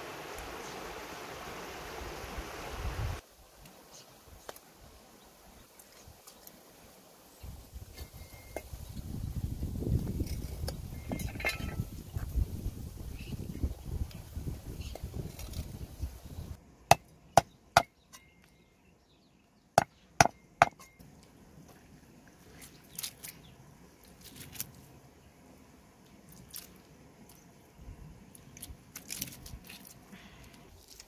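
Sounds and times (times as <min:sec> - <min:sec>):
cleaver knocking against stone: 0:19.8 - 0:20.9.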